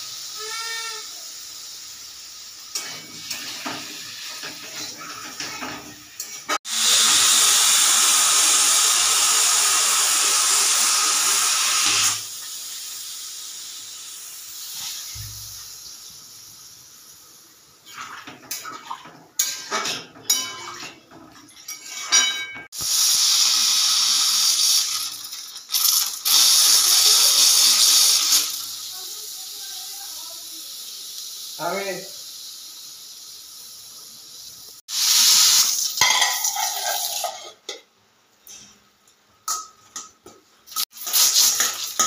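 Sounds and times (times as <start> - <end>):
pressure cooker whistling: 6.6 - 12.3, 22.8 - 25.0, 26.2 - 28.6
steam sputtering bursts: 6.7 - 13.9, 22.8 - 31.8.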